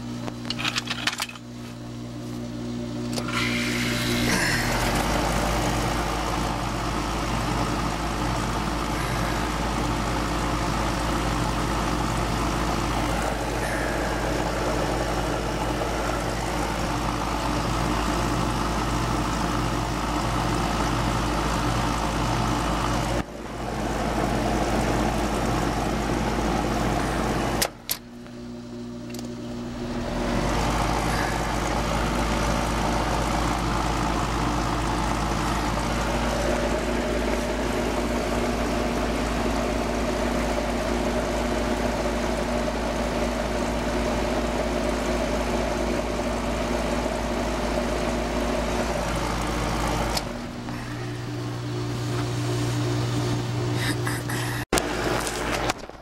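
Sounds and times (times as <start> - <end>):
air conditioner unit humming: 0.0 - 56.0
compressor click: 3.0 - 4.2.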